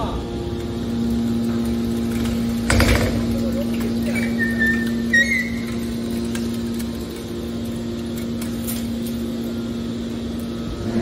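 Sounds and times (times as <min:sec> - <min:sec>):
hydraulic power unit humming: 0:00.0 - 0:11.0
high squeak: 0:04.1 - 0:05.8.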